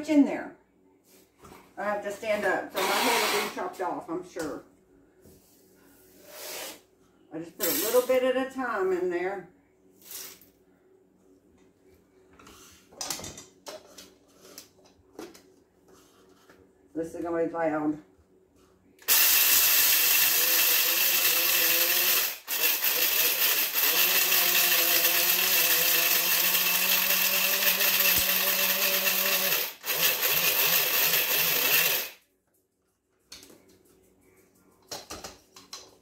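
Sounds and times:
electric coffee grinder grinding: 2.8s - 3.6s, 19.0s - 32.2s.

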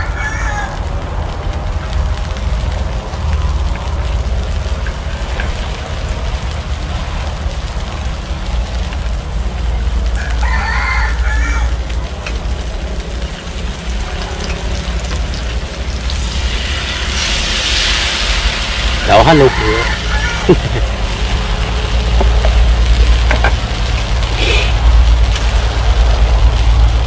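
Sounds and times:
rooster crowing: 0.0s - 0.8s, 10.2s - 11.8s, 19.0s - 20.8s
steady low rumble: 0.7s - 10.4s, 11.2s - 27.0s
hiss: 16.0s - 20.8s, 24.2s - 27.0s.

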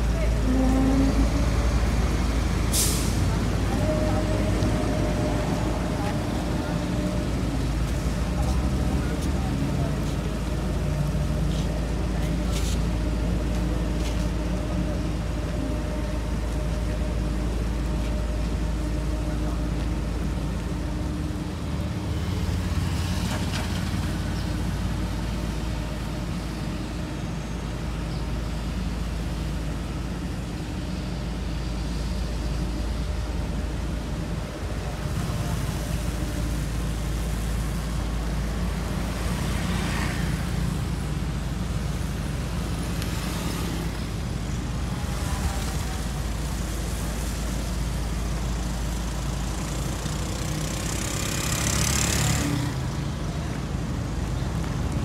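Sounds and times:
passing traffic: 0.0s - 55.0s
road roller diesel engine: 0.0s - 55.0s.

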